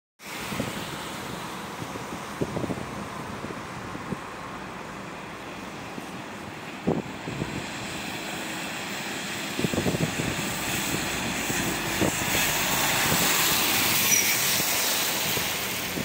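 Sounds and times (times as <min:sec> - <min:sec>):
tyre spray hiss on wet road: 0:00.2 - 0:16.0
heavy truck driving past: 0:07.3 - 0:16.0.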